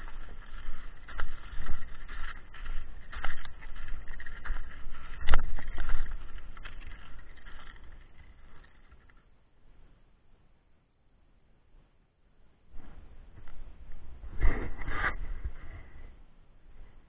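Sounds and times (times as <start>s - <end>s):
skis scraping and crunching snow: 0.0s - 9.2s.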